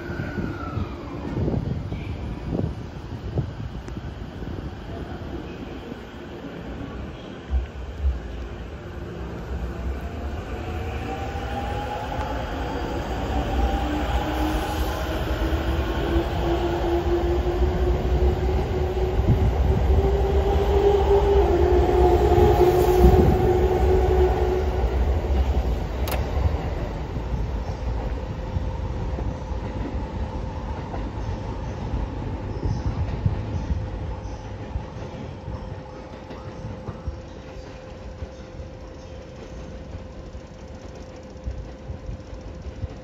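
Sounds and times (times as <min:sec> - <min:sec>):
train wheels rumbling on rail: 0:00.0 - 0:43.0
sharp click: 0:26.0 - 0:26.3.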